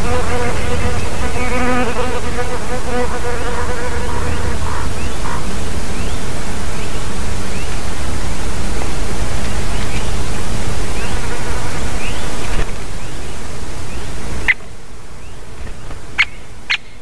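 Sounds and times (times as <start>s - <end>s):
flying insect buzzing: 0.0s - 5.4s, 10.8s - 12.9s
background hiss: 0.0s - 17.0s.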